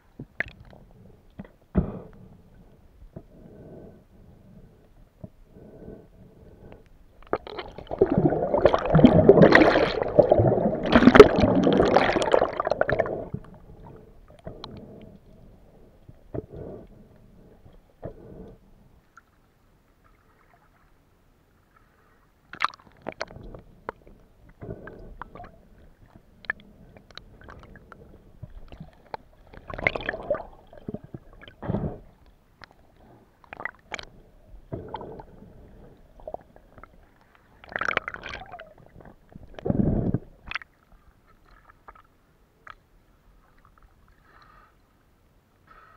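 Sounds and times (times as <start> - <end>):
muffled underwater gurgling rush: 7.3 - 15.0, 24.6 - 32.1.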